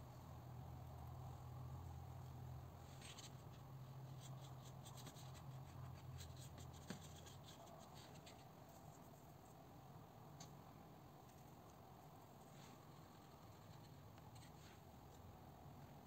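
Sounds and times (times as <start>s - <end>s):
low steady hum: 0.0s - 16.0s
brush strokes on paper: 12.3s - 14.9s.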